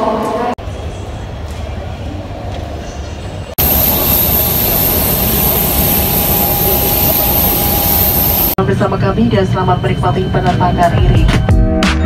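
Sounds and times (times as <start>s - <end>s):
high turbine whine: 3.6s - 8.6s
indoor hum: 3.6s - 8.6s
turboprop engine running: 3.6s - 8.6s.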